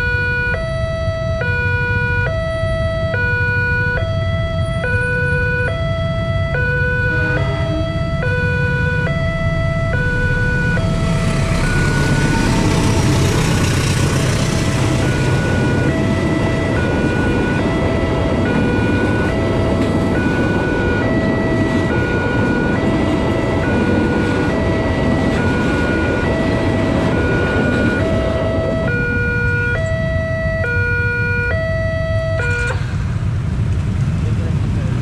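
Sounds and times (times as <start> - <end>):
level crossing alarm two tones: 0.0 - 13.4, 14.8 - 32.8
loud rushing noise: 6.9 - 30.3.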